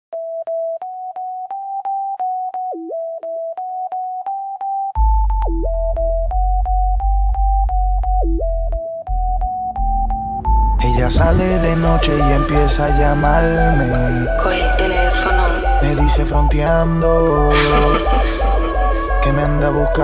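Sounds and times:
synth keyboard melody: 0.1 - 20.0
heavy deep bass beat: 5.0 - 20.0.

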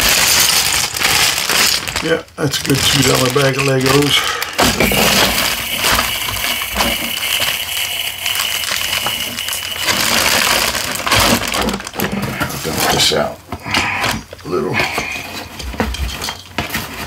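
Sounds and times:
plastic bricks clattering in a bag: 0.0 - 13.2, 14.0 - 17.0
plastic bag crinkling: 0.0 - 14.4.

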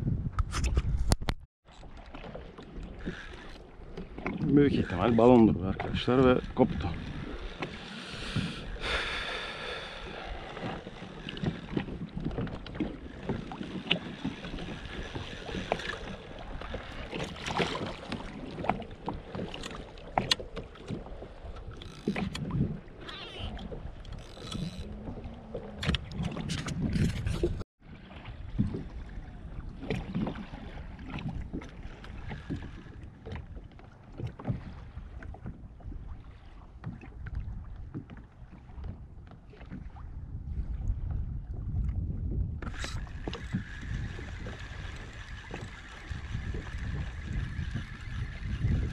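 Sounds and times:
wind on microphone: 0.0 - 1.4, 2.6 - 48.9
water lapping against kayak hull: 0.4 - 48.9
knocks and clicks from hull: 23.6 - 27.6.

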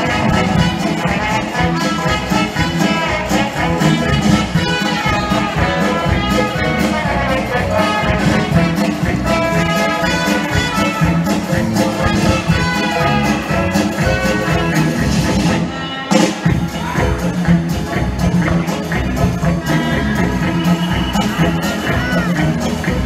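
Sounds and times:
brass music over a beat: 0.0 - 23.0.

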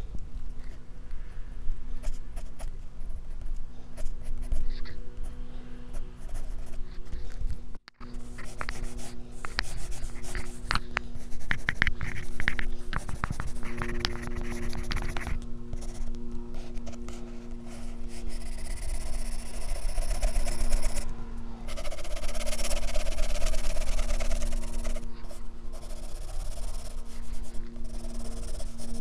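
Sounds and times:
pencil scratching on paper: 8.2 - 21.0, 21.7 - 29.0.

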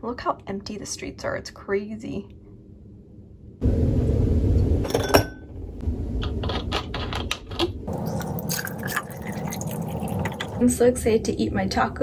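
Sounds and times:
low rumble: 2.2 - 12.0
ice cube clinking glass: 7.9 - 10.6.

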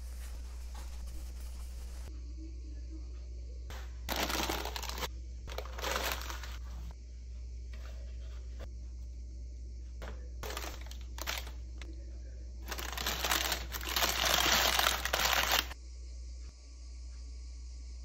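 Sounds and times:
baking paper crinkling: 0.0 - 2.1, 4.1 - 6.9, 10.4 - 11.6, 12.6 - 15.8.

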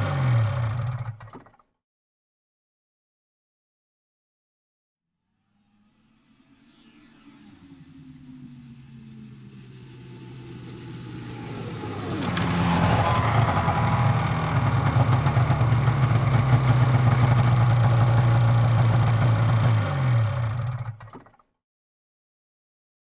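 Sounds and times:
snowmobile engine approaching: 0.0 - 1.2, 6.4 - 21.2.

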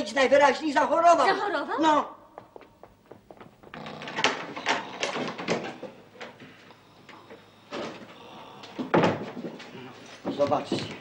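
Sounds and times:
hurried footsteps on stairs: 2.3 - 3.8, 8.8 - 11.0.

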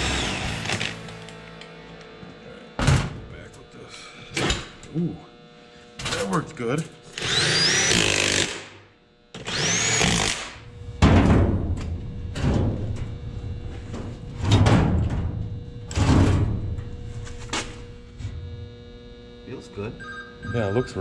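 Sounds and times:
cordless drill whine: 0.0 - 1.6, 7.1 - 8.6, 9.3 - 10.4.

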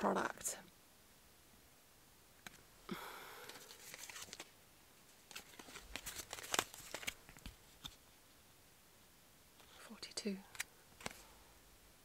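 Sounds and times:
card tag rustling: 3.5 - 4.5, 5.3 - 8.0.

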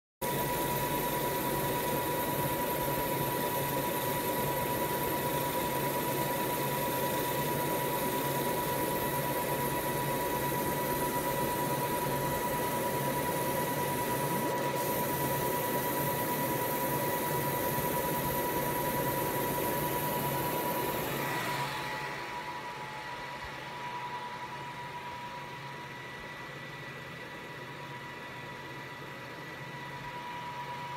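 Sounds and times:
laser marking machine hissing and whining: 0.2 - 30.9.

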